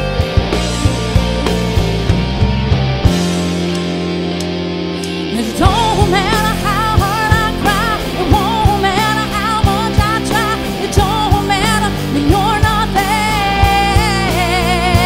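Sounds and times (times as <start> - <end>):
drums beating: 0.0 - 15.0
rock band playing live: 0.0 - 15.0
woman singing: 5.2 - 15.0.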